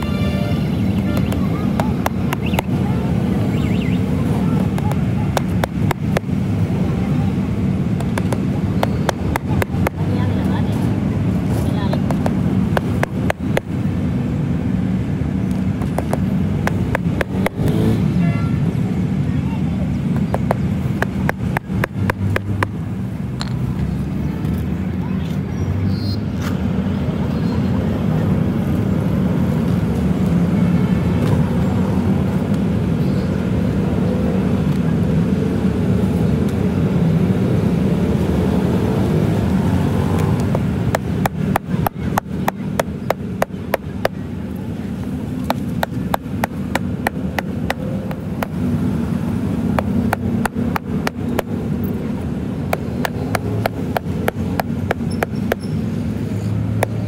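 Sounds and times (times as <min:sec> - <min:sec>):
hammer tapping nails into rubber: 0:04.8 - 0:06.3, 0:08.0 - 0:10.0, 0:12.0 - 0:13.7, 0:15.8 - 0:17.8, 0:20.3 - 0:22.7, 0:40.5 - 0:44.2, 0:45.5 - 0:48.6, 0:49.8 - 0:51.6, 0:52.7 - 0:55.6.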